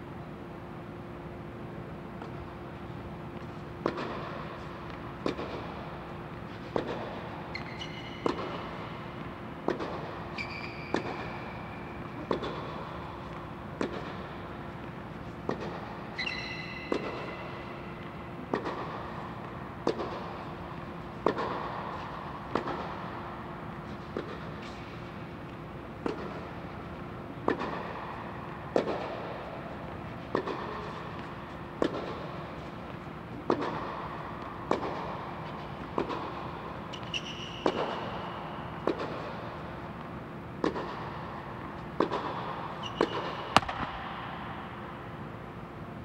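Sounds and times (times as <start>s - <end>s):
steady low hum: 0.0s - 46.0s
shoe squeaks on court: 7.4s - 9.0s, 10.3s - 12.3s, 16.1s - 17.8s, 36.9s - 38.6s, 42.8s - 43.9s
racket striking tennis ball: 10.8s - 17.3s, 21.2s - 23.1s, 27.4s - 32.4s, 33.4s - 39.7s, 40.6s - 44.9s.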